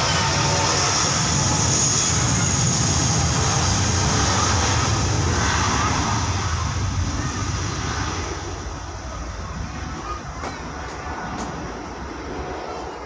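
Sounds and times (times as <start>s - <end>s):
high hissing whine: 0.0s - 13.0s
jet engines of rolling airliner: 0.0s - 13.0s.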